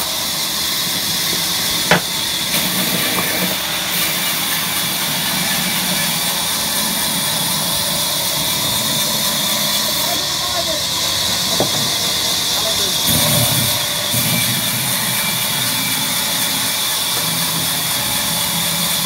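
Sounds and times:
band saw whirring: 0.0s - 19.0s
sharp knock: 1.9s - 2.1s.

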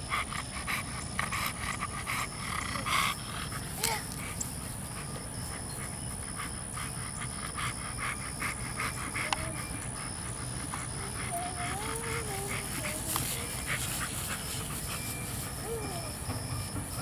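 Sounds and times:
dog panting hard: 0.0s - 17.0s.

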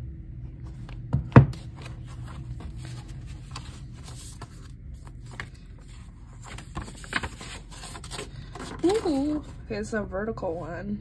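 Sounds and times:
paper and card rustling: 1.6s - 9.7s.

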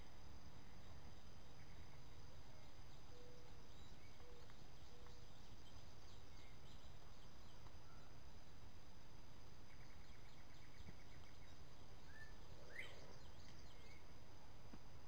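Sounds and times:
insects chirping: 0.0s - 15.0s
faint short bird calls: 9.7s - 14.0s.

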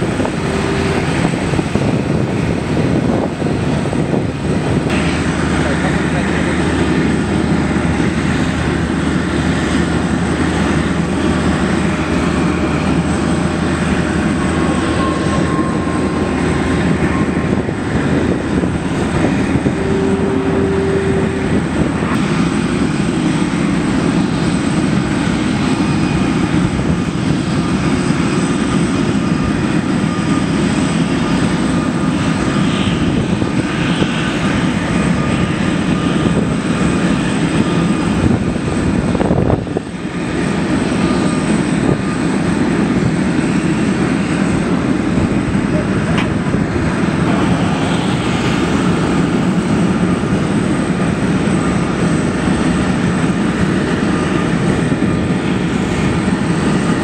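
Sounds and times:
jet engine noise: 0.0s - 57.0s
brief steady tone: 14.6s - 17.6s, 19.7s - 22.2s.

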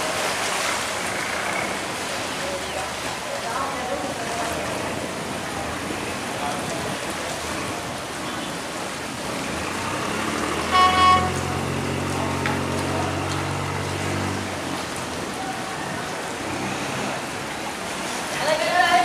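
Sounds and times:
water rushing through sluice: 0.0s - 19.0s
boat engine running: 3.9s - 18.7s
horn toot: 10.7s - 11.8s.

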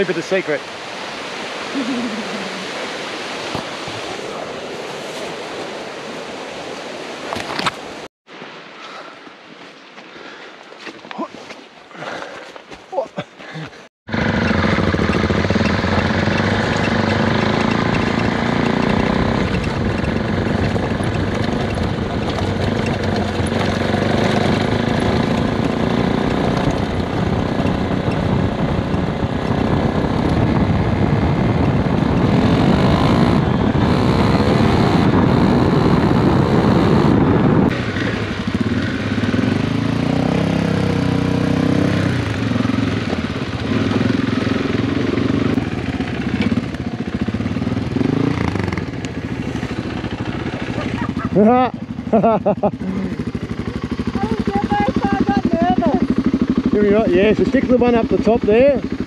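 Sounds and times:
motorcycle engine: 14.1s - 59.0s
wind rush: 18.2s - 40.9s.

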